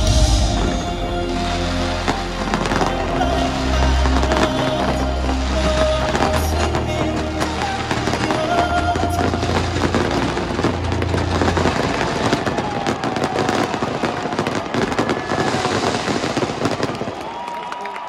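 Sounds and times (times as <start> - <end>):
fireworks bangs and crackles: 0.0 - 18.0.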